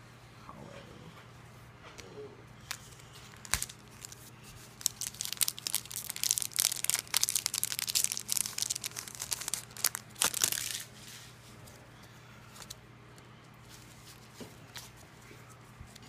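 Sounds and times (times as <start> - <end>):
foil wrapper crackling: 2.7 - 11.0.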